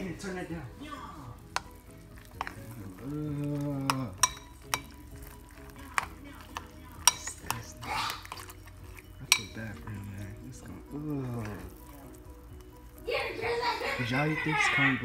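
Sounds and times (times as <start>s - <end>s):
spoon stirring cereal in bowl: 1.3s - 14.6s
spoon clinking against bowl: 1.5s - 12.6s.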